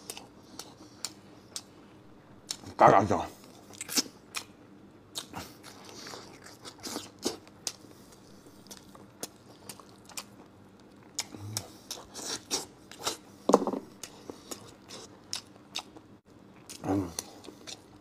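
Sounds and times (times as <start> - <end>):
person chewing and biting: 5.2 - 13.2.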